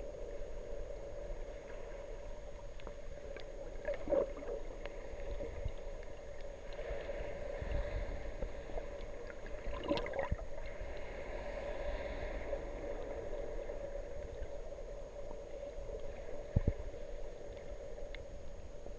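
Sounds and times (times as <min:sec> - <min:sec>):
muffled water movement: 0:00.0 - 0:18.9
bubbles rustling: 0:09.6 - 0:10.4.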